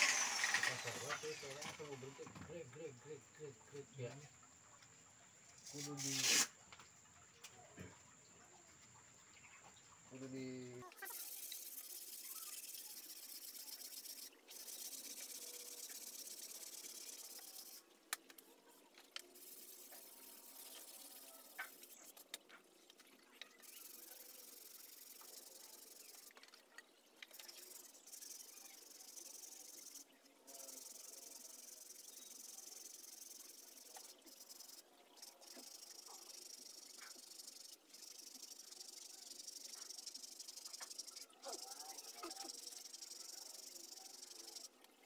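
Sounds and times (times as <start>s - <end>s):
sandpaper rubbing on wood: 5.7s - 6.5s, 11.1s - 17.8s, 19.4s - 22.2s.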